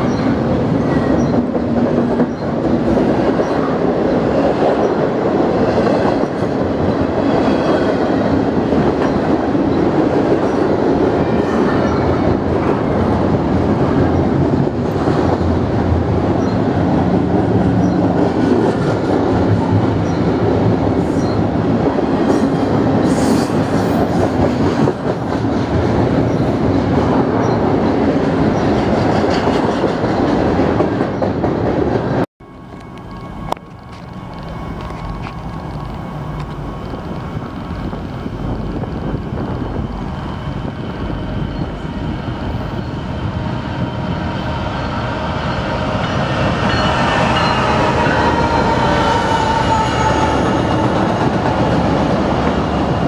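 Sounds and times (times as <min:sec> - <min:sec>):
freight train wheels rumbling: 0:00.0 - 0:53.0.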